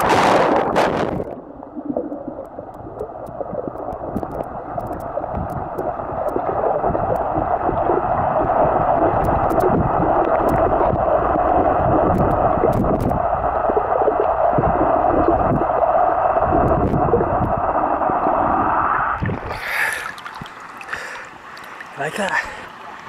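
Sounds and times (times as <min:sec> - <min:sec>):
muffled underwater noise: 0:00.0 - 0:22.8
water splashing: 0:00.0 - 0:23.0
water dripping: 0:01.1 - 0:08.2, 0:09.0 - 0:11.0, 0:18.2 - 0:22.6.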